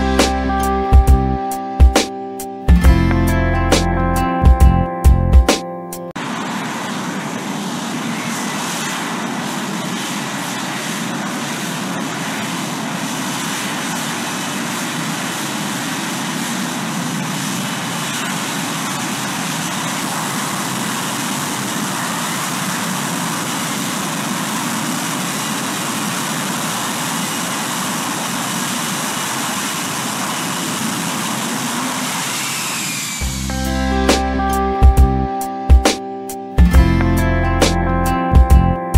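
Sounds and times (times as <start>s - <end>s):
fighter jet engine roaring: 6.2s - 34.4s.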